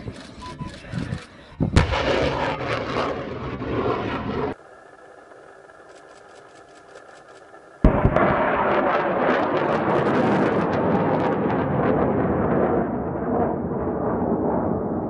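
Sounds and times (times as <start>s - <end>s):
rocket launch blast: 1.6s - 4.6s, 7.8s - 15.0s.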